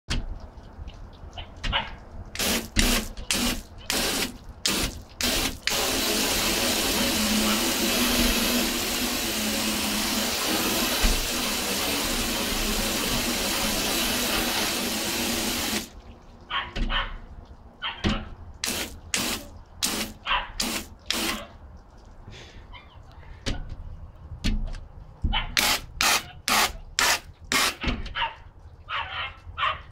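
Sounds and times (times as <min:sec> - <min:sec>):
hose water spraying on glass: 0:02.2 - 0:16.1, 0:18.6 - 0:21.5, 0:25.6 - 0:27.9.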